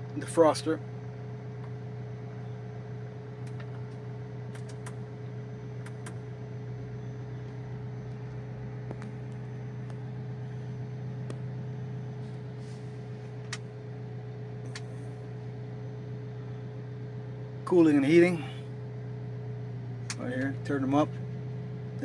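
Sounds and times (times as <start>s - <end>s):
car engine idling: 0.0s - 22.0s
dashboard switch clicks: 3.4s - 5.1s, 5.8s - 6.2s, 13.5s - 13.7s, 14.6s - 15.0s.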